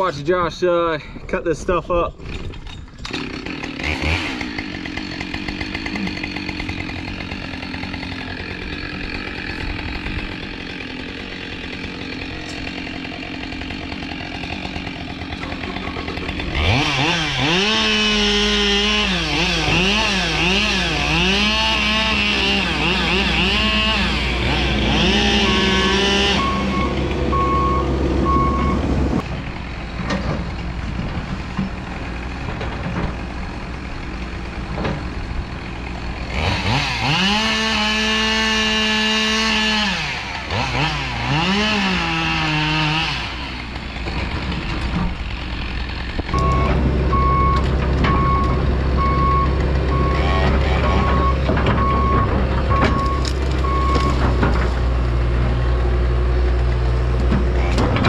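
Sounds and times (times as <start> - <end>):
excavator engine running: 2.2 - 58.0
chainsaw revving: 3.0 - 28.5, 33.4 - 51.4
alarm beeping: 25.5 - 28.9.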